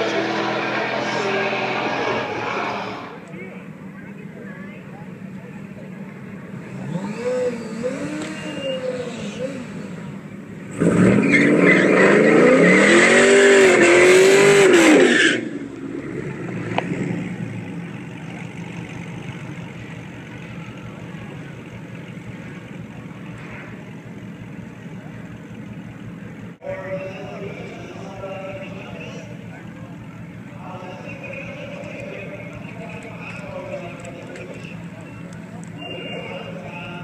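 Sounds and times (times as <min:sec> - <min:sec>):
car engine revving: 0:00.0 - 0:03.4, 0:05.2 - 0:37.0
tyres screeching: 0:10.8 - 0:15.5.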